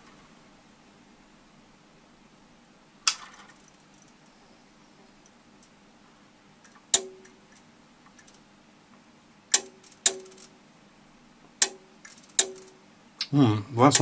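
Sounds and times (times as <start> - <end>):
sharp clicks: 9.5 - 10.5, 11.6 - 13.3.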